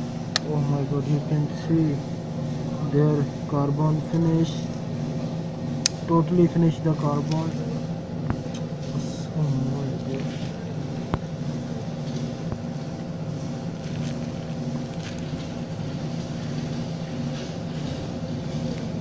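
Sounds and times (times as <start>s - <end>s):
mechanical hum: 0.0s - 19.0s.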